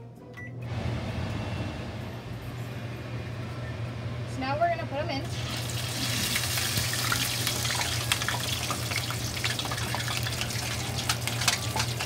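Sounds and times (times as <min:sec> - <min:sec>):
food sizzling in hot oil: 0:05.3 - 0:12.0
oil crackling and popping: 0:05.4 - 0:12.0.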